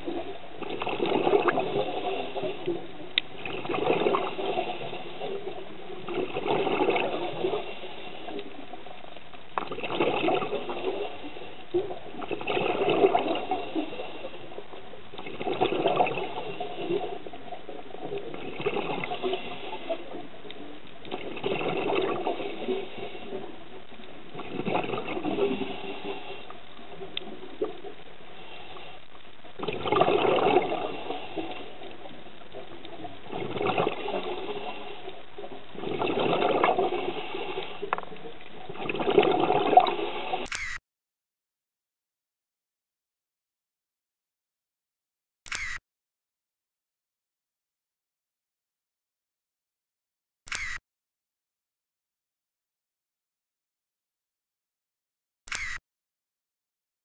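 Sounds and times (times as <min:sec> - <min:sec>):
regulator exhaust bubbles underwater: 0:00.0 - 0:07.8, 0:09.5 - 0:28.3, 0:29.4 - 0:40.4
faint clicks: 0:02.6 - 0:03.3, 0:37.6 - 0:38.5.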